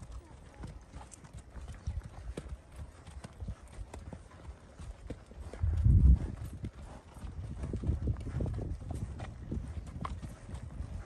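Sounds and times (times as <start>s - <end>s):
horse hooves on dirt trail: 0.0s - 11.0s.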